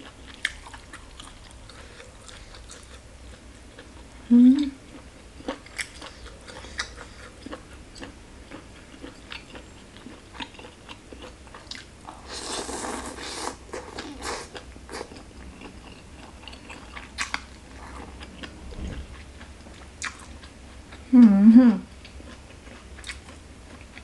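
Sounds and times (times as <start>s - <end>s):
slurping noodles: 12.2s - 15.0s.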